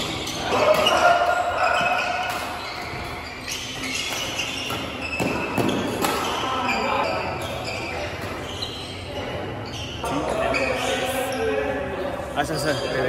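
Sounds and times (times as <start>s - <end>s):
racket hitting shuttlecock: 0.5s - 6.4s.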